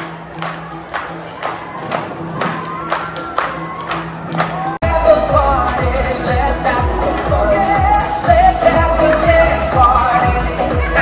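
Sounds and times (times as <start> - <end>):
pop dance music with handclaps: 0.0 - 11.0
song with kick drum and singer: 4.6 - 11.0.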